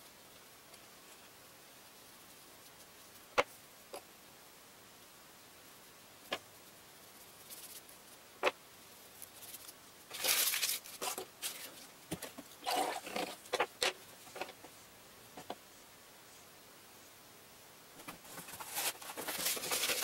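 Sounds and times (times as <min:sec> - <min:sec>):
paper rustling: 0:09.2 - 0:12.3, 0:18.0 - 0:20.0.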